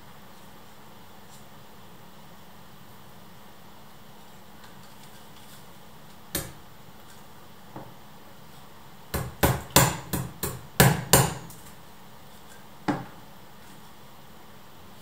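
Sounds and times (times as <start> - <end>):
hammer striking a door: 9.1 - 11.5.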